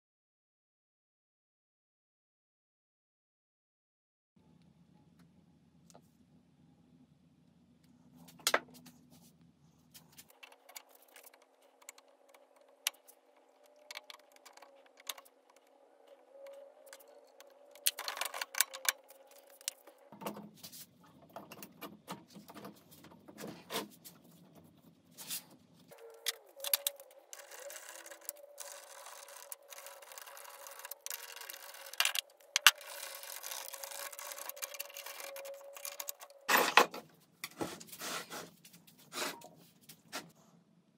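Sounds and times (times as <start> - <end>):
tools clicking and scraping on metal parts: 10.0 - 20.5, 25.9 - 37.6.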